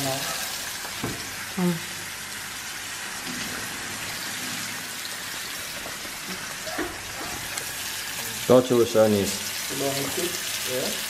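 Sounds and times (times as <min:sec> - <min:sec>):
steak sizzling in a frying pan: 0:00.0 - 0:11.0.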